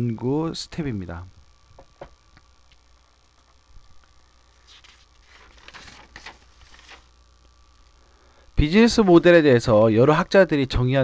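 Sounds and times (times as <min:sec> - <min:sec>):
steady low hum: 0:00.0 - 0:11.0
faint rustles and clicks: 0:01.8 - 0:07.2.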